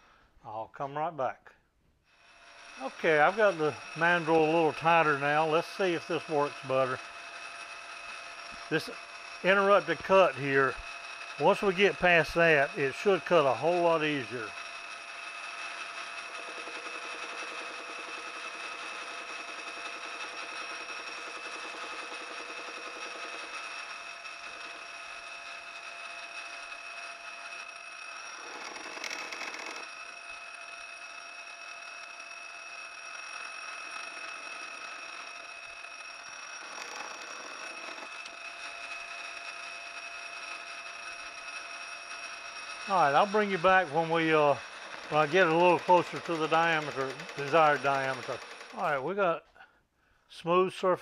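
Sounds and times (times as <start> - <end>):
cutting tool scraping metal: 2.1 - 49.0
metal lathe whine: 2.2 - 48.9
cutting tool rattling: 2.4 - 49.1.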